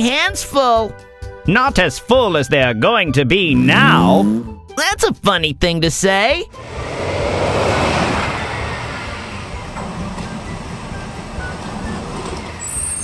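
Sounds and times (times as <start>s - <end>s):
cartoon truck engine rumble: 3.5s - 4.5s, 6.5s - 13.0s.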